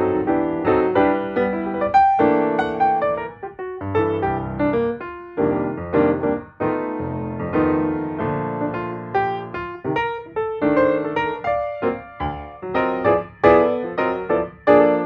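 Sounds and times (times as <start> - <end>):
piano playing a light tune: 0.0 - 15.0.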